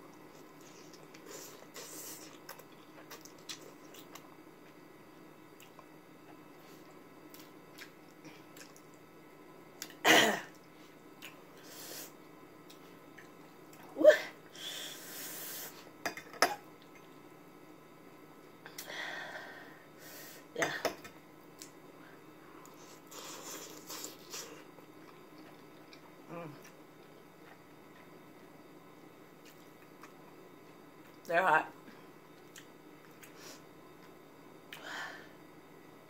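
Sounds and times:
person chewing noodles: 0.1s - 4.8s, 5.6s - 9.0s, 22.6s - 28.5s.

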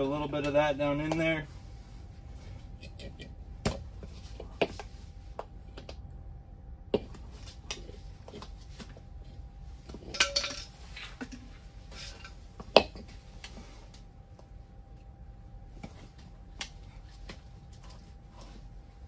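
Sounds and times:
tire spoons clinking on metal rim: 9.9s - 13.1s.

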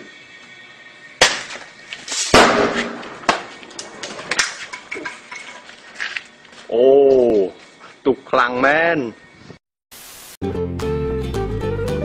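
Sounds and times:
firecracker bangs: 1.2s - 3.6s
firecrackers crackling: 1.2s - 5.2s.

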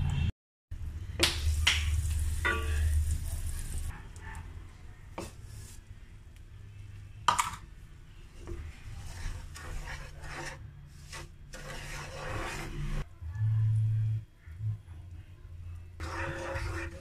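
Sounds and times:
spatula scraping sugar in pan: 5.2s - 5.9s, 8.2s - 13.1s, 15.9s - 17.0s
low steady hum: 13.0s - 16.9s.

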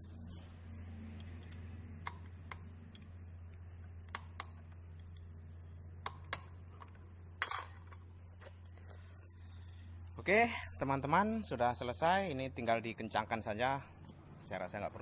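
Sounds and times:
steady low hum: 0.0s - 15.0s
hex key clinking against bolts: 1.1s - 5.3s, 6.0s - 8.2s
metallic clatter of tools: 6.0s - 8.1s.

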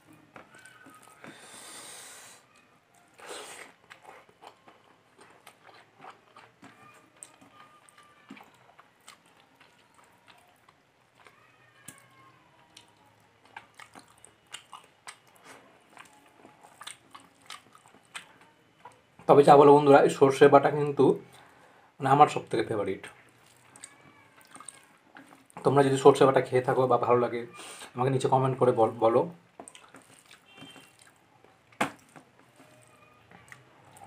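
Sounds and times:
close chewing with mouth clicks: 0.0s - 19.3s, 23.0s - 25.7s, 29.5s - 34.0s.

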